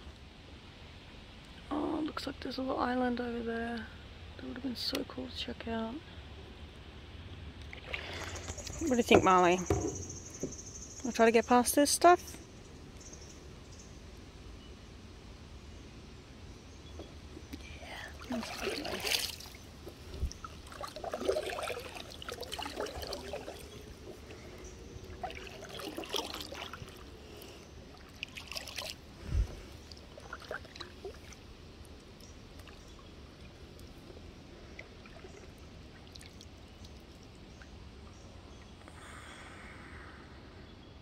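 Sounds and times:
faint water hiss: 0.0 - 41.0
paddle splashing water: 7.6 - 10.8, 18.1 - 37.4
dull knock: 9.1 - 10.6.

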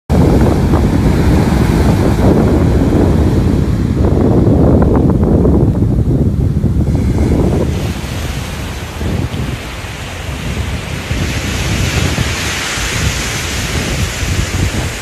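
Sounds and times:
wind buffeting microphone: 0.1 - 15.0
small waves washing on sand: 6.8 - 15.0.

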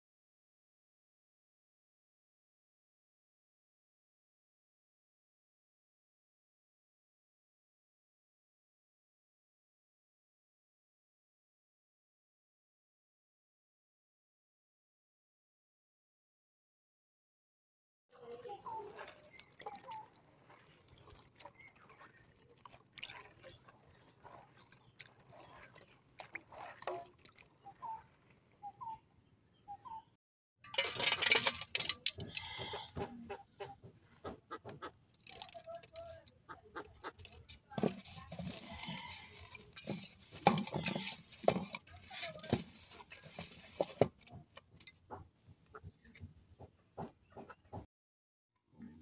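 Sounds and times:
water splashing in bowl: 18.6 - 29.0, 36.7 - 45.0
hand scraping and knocking steel bowl: 36.8 - 45.3.

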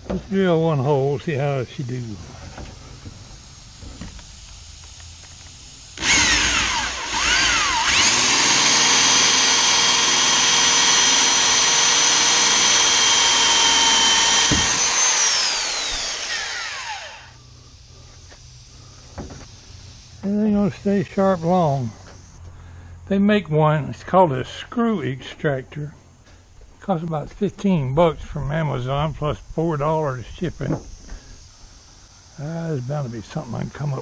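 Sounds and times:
electric drill boring into wood: 1.7 - 22.4.

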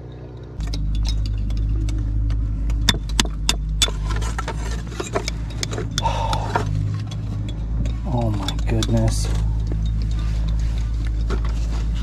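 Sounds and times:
steady low engine hum: 0.0 - 12.0
metal hand tool tapping shale: 7.5 - 10.6.

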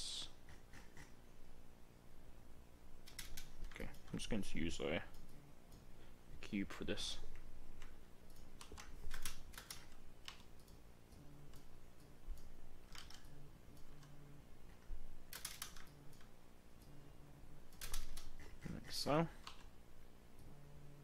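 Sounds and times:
keyboard keys clicking: 7.8 - 14.2, 15.3 - 16.3, 17.7 - 18.6.

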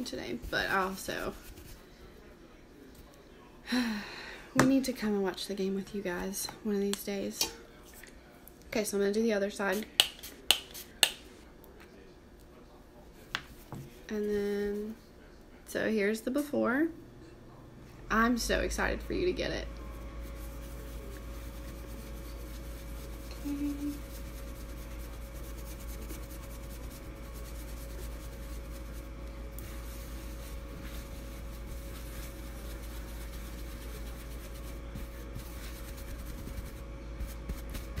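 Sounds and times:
brush bristles rubbing paper towel: 0.3 - 1.9, 19.9 - 38.0
steady low hum: 9.5 - 38.0.

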